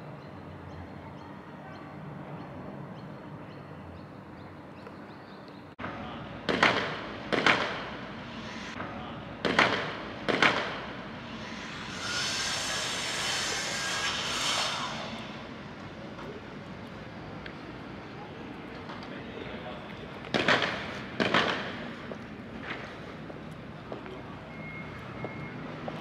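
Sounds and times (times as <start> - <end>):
steady outdoor hum: 0.0 - 26.0
outdoor hiss: 7.3 - 9.3, 9.9 - 17.4.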